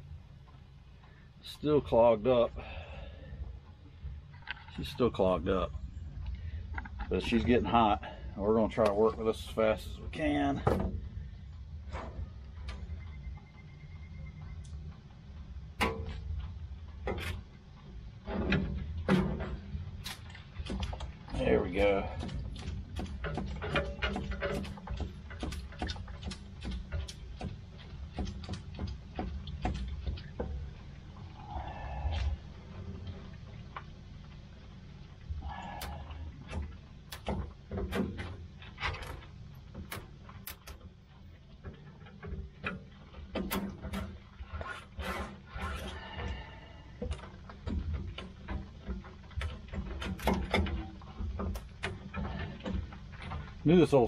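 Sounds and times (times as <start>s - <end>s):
low steady rumble: 0.0s - 54.0s
metal wire scraping in drain: 41.7s - 53.6s.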